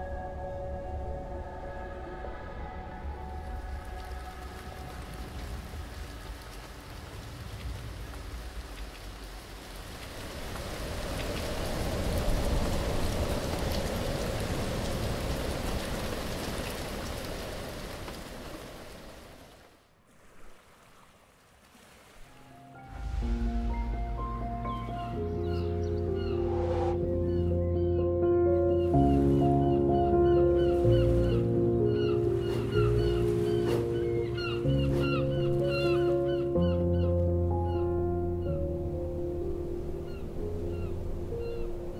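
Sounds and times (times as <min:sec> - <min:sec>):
steady rain falling: 0:03.2 - 0:19.8.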